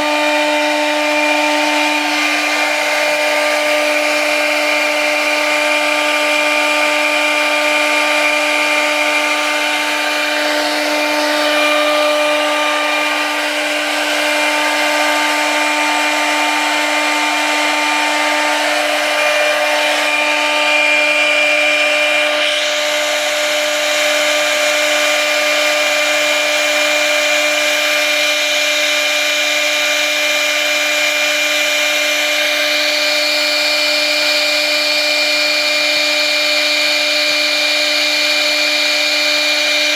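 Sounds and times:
bit chipping through material: 0:00.0 - 0:39.9
router spindle whine: 0:00.0 - 0:39.9.

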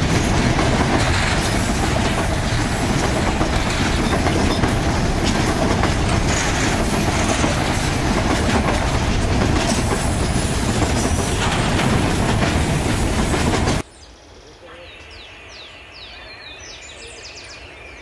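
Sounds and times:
freight wagons rolling on rails: 0:00.0 - 0:13.8.

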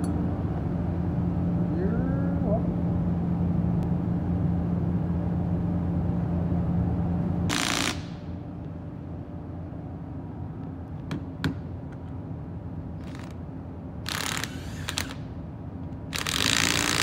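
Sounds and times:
steady low hum: 0:00.0 - 0:17.0
cordless drill bursts: 0:07.5 - 0:08.1, 0:14.1 - 0:15.2, 0:16.2 - 0:17.0.

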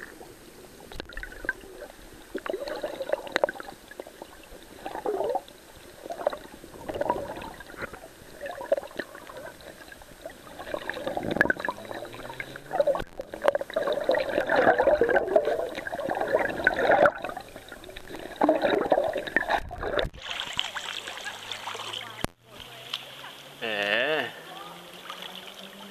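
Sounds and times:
underwater gurgling and sloshing: 0:00.0 - 0:22.4
water splashing: 0:00.0 - 0:23.6, 0:24.4 - 0:25.9.

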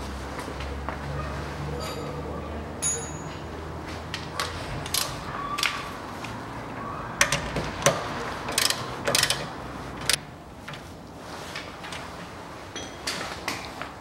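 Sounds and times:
ratchet wrench clicking: 0:07.2 - 0:10.2.

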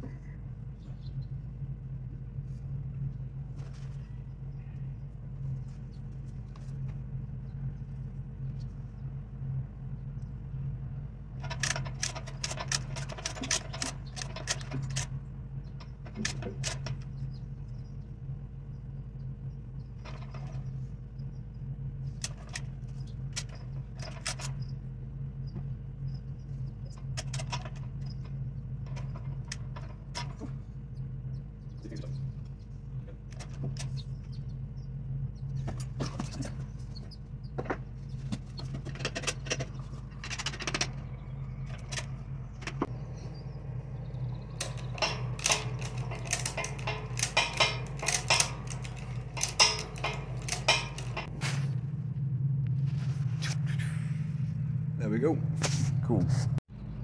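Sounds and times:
engine idling hum: 0:00.0 - 0:57.0
metal chain rattling and clicking: 0:11.4 - 0:15.2, 0:44.0 - 0:51.3.

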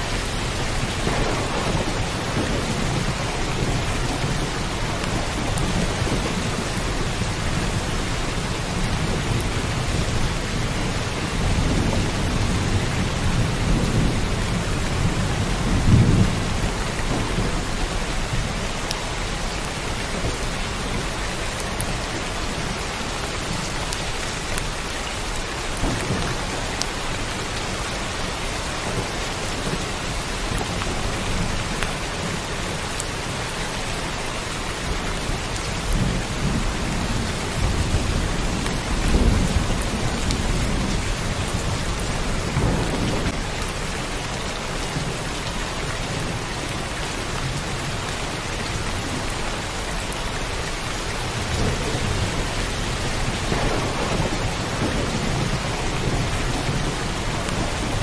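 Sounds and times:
heavy rain: 0:00.0 - 0:58.0
thunder rumbling: 0:00.3 - 0:33.4, 0:34.8 - 0:45.1, 0:51.2 - 0:58.0.

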